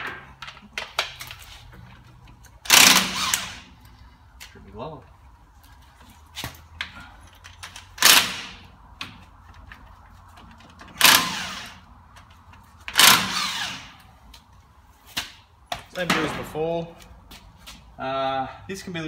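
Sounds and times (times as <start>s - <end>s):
impact wrench firing: 2.6s - 3.7s, 7.9s - 8.7s, 11.0s - 11.8s, 12.9s - 14.0s.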